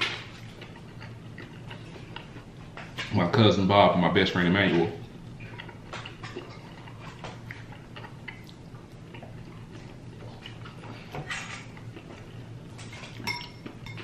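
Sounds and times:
low steady hum: 0:00.0 - 0:14.0
chewing clicks: 0:00.6 - 0:02.5, 0:05.4 - 0:10.9
cutlery on dishes: 0:12.8 - 0:14.0.

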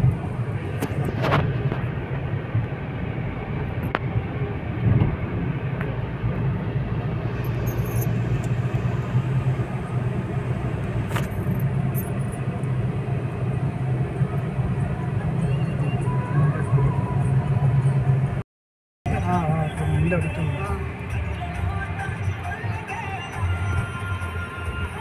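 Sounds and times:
car engine and tyre rumble: 0:00.0 - 0:18.4, 0:19.1 - 0:25.0.

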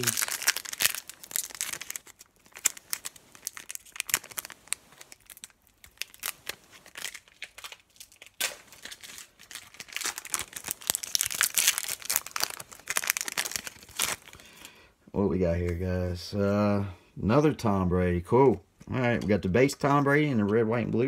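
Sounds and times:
foil wrapper crinkling and tearing: 0:00.0 - 0:14.7.

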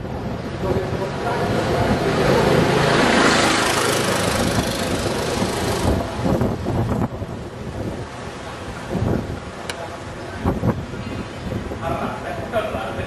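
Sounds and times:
wind on microphone: 0:00.0 - 0:13.0
vehicle engine passing by: 0:01.0 - 0:06.4.

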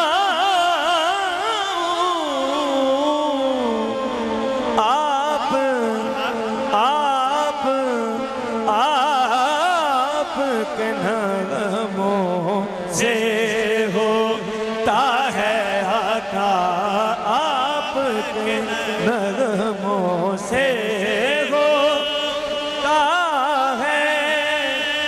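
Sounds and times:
devotional singing: 0:00.0 - 0:25.0.

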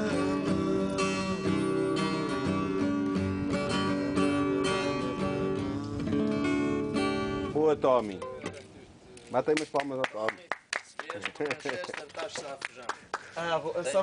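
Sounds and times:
classical guitar fingerpicking: 0:00.0 - 0:08.6.

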